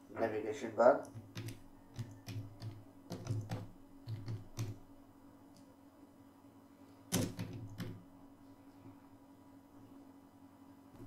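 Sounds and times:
typing on computer keyboard: 1.0 - 4.9, 7.1 - 8.0.

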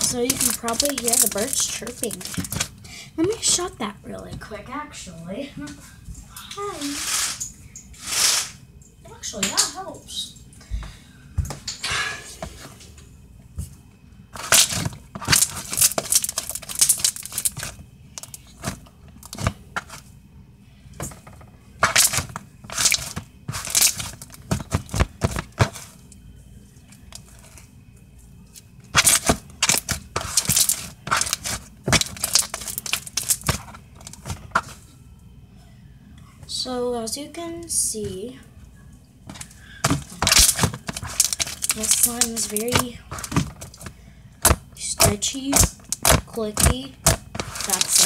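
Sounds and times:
crunchy slime squeezed by hand: 14.4 - 20.0, 21.8 - 25.9, 28.9 - 34.8, 39.8 - 48.0.

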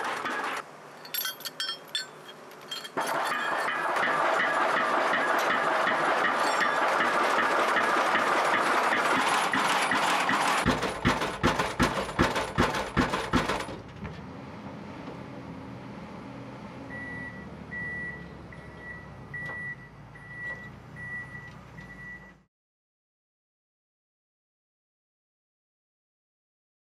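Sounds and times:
hydraulic hammer striking pile: 0.0 - 13.9
machine running loudly: 3.0 - 12.9.

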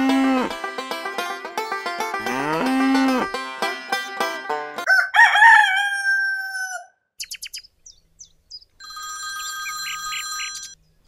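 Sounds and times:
rooster crowing: 4.9 - 7.0
telephone ringing: 8.8 - 10.8.

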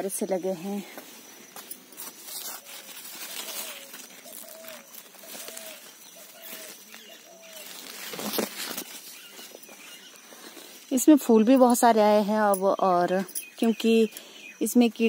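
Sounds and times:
leaves rustling against phone: 0.7 - 11.0
dove cooing: 2.6 - 8.4.

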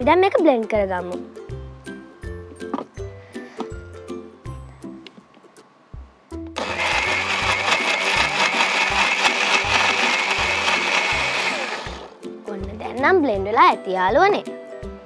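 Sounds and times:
electric blender running: 6.6 - 12.2.

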